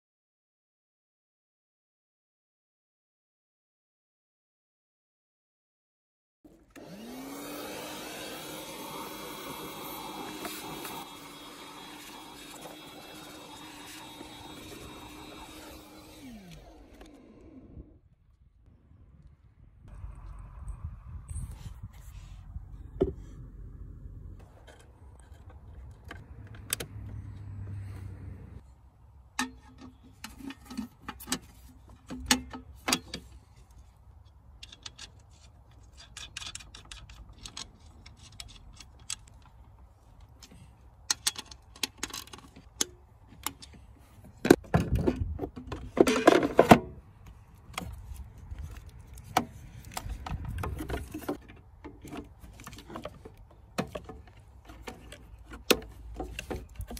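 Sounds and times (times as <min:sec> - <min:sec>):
plastic and metal parts rattling: 0:34.3 - 0:56.9.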